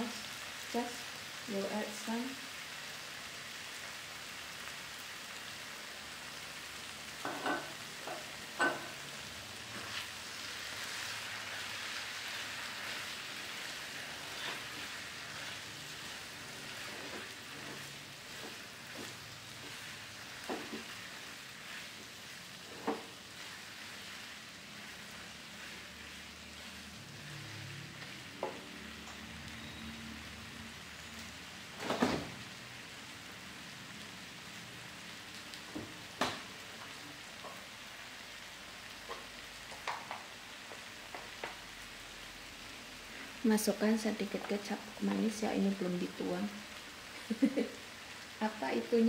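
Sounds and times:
noodles sizzling in oil: 0:00.0 - 0:49.0
spatula scraping and knocking pan: 0:16.7 - 0:24.2.

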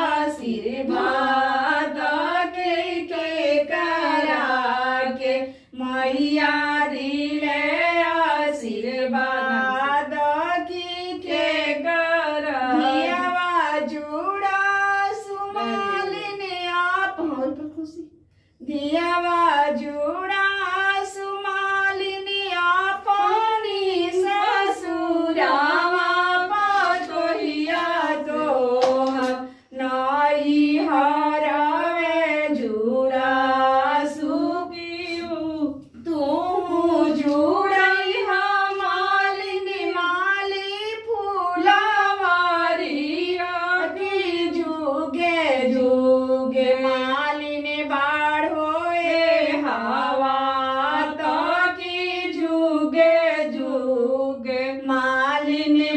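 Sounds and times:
women singing unaccompanied: 0:00.0 - 0:55.9.

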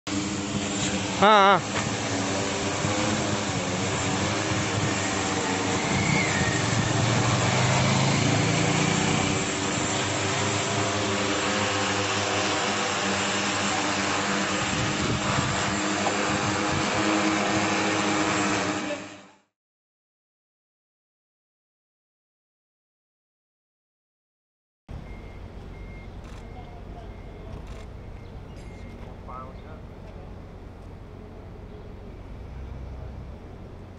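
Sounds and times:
drone propellers droning hum: 0:00.1 - 0:19.3.

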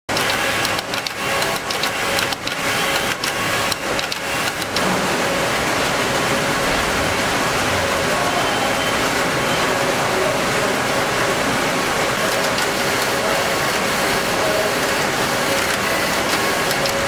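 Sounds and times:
knitting machinery din: 0:00.1 - 0:17.0.

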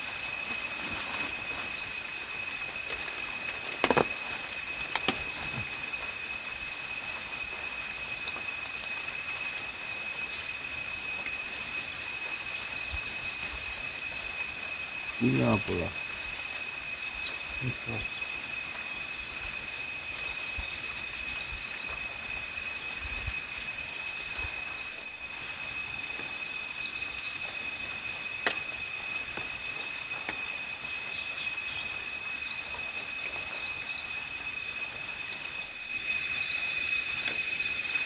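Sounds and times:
insect fast pulsing trill: 0:00.0 - 0:38.0
night insects shrill tones: 0:00.0 - 0:38.0.

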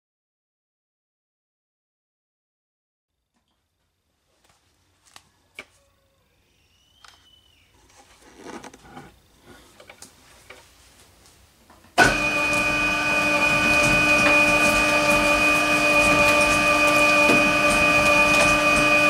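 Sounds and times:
shredder machine whine: 0:12.0 - 0:19.0.

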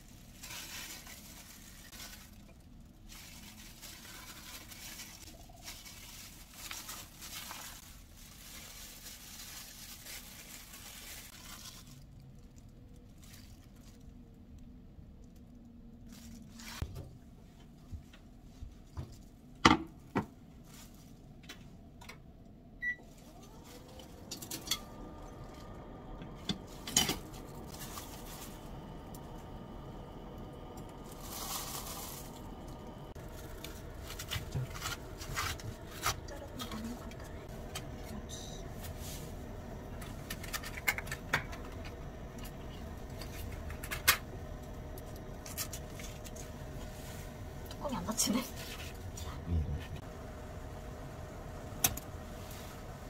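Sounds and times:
induction hob humming: 0:22.0 - 0:53.0.

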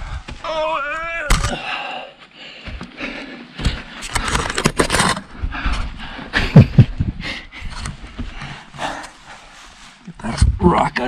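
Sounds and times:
heavy breathing: 0:00.0 - 0:00.4, 0:01.5 - 0:04.6, 0:05.2 - 0:10.0
body scraping over sand and grit: 0:07.6 - 0:10.4.

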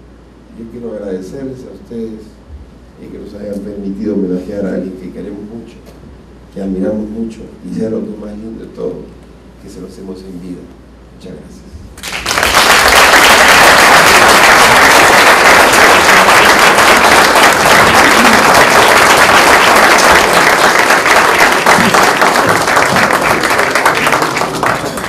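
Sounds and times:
audience applauding: 0:12.0 - 0:25.0.

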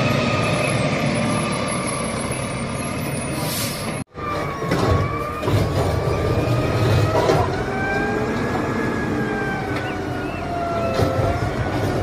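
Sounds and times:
diesel engine rumble: 0:00.0 - 0:12.0
clunks: 0:04.3 - 0:08.8, 0:09.6 - 0:12.0.

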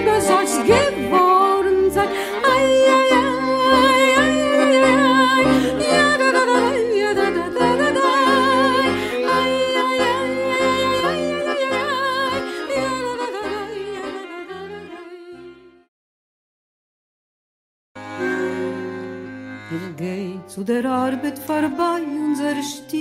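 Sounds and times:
accordion bass chords: 0:00.0 - 0:15.9, 0:18.0 - 0:22.8
violin melody: 0:00.0 - 0:15.9, 0:18.0 - 0:23.0.

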